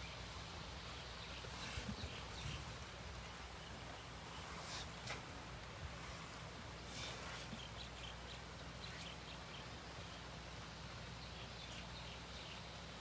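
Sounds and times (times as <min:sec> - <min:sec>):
soft hiss: 0:00.0 - 0:13.0
bird chirps: 0:06.7 - 0:10.4, 0:11.0 - 0:12.8.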